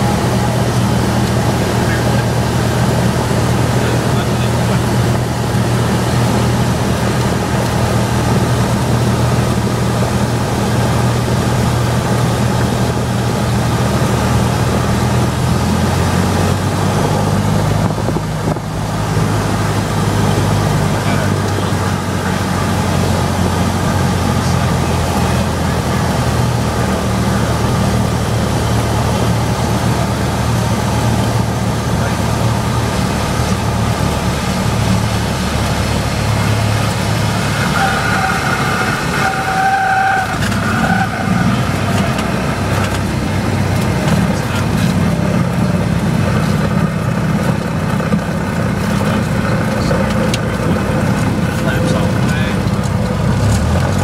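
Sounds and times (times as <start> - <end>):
piston engine and propeller: 0.0 - 39.3, 40.2 - 54.0.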